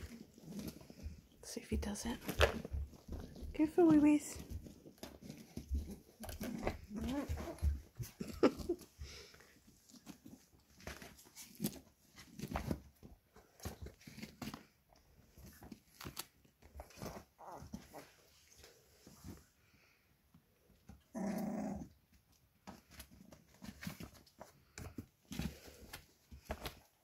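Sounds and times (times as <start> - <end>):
paws scuffling through pellet litter: 0.0 - 19.9, 22.1 - 27.0
puppies squeaking and grunting: 3.9 - 8.9, 16.8 - 18.3.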